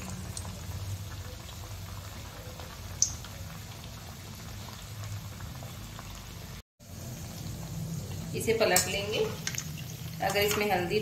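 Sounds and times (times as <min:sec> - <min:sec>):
oil bubbling and sizzling: 0:00.0 - 0:11.0.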